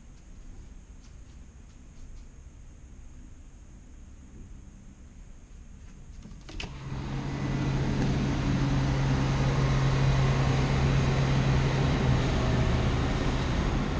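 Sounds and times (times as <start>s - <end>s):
low even hum: 0.0s - 13.9s
sliding door opening with a click: 6.2s - 8.4s
outdoor rush of noise: 6.7s - 13.9s.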